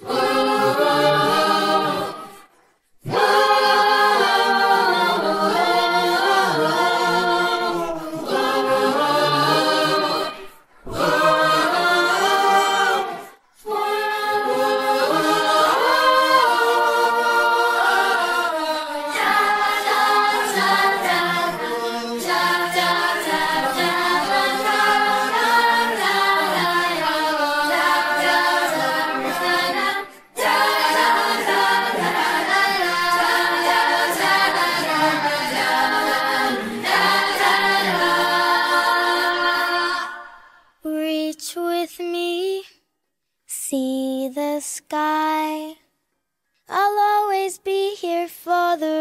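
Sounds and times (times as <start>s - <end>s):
choir singing a cappella: 0.0s - 40.9s.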